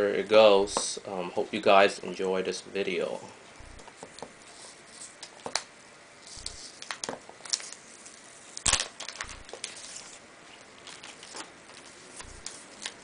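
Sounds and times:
wrapping crinkling: 0:03.6 - 0:13.0.

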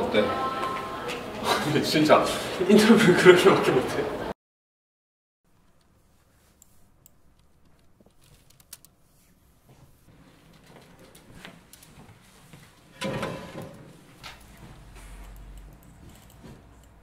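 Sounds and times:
computer mouse and keyboard clicks: 0:06.5 - 0:09.0, 0:14.2 - 0:17.0.

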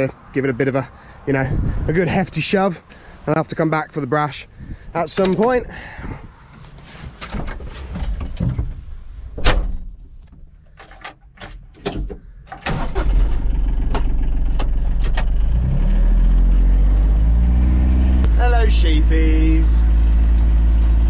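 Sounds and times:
knocks and clatter: 0:07.2 - 0:12.6
diesel engine starting and running: 0:12.5 - 0:21.0.

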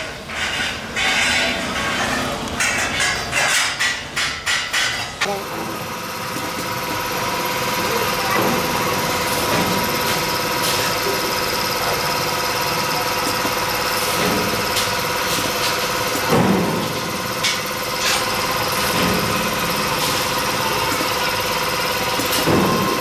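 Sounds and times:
machine hum with tones: 0:05.1 - 0:23.0.

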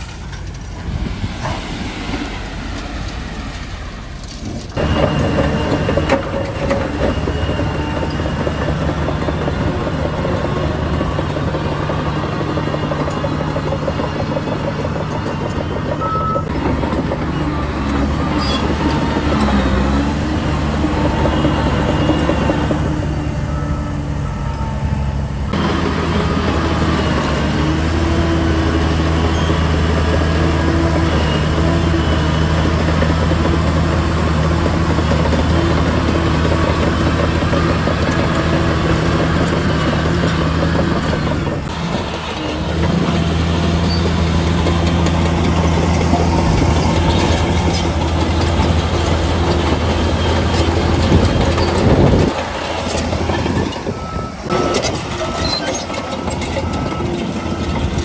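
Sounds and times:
heavy diesel engine running: 0:00.0 - 0:58.0
high beeps: 0:16.0 - 0:16.5.

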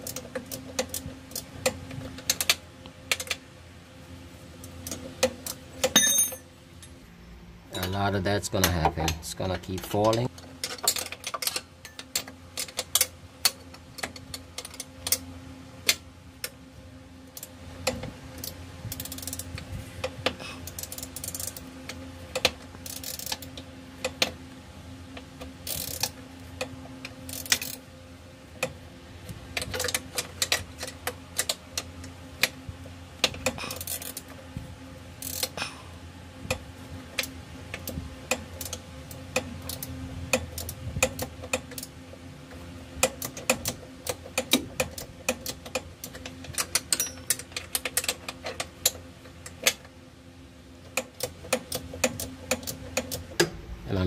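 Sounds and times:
faint steady hum: 0:00.0 - 0:54.0
ratchet wrench clicking: 0:17.4 - 0:19.6, 0:20.6 - 0:21.6, 0:22.3 - 0:23.5, 0:25.6 - 0:26.2, 0:27.3 - 0:27.8, 0:33.2 - 0:34.2, 0:35.2 - 0:35.6.

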